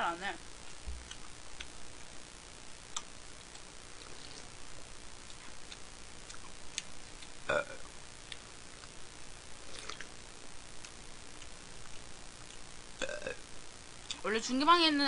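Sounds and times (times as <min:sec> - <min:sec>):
faint ticks: 0:00.6 - 0:01.8, 0:02.9 - 0:03.7
woman burping: 0:07.5 - 0:07.8, 0:13.0 - 0:13.4.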